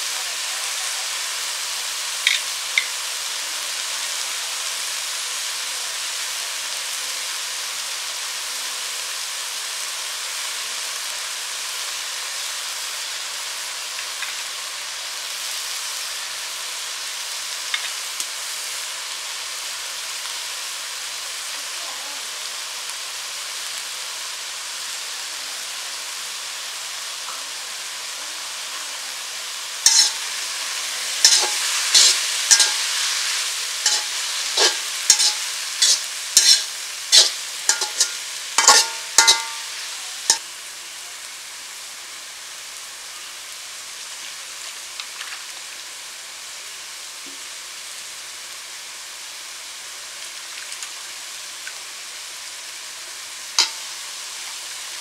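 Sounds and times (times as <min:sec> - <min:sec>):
leaves sizzling in oil: 0:00.0 - 0:55.0
metal spatula scraping a pan: 0:29.8 - 0:40.4, 0:53.6 - 0:54.0.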